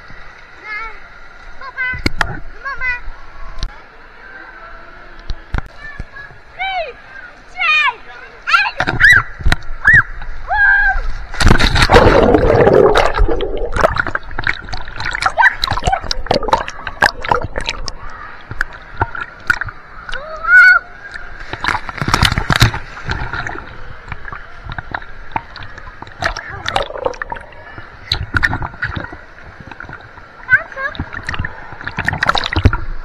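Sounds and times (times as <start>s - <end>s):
water splashing in pool: 10.8s - 33.0s.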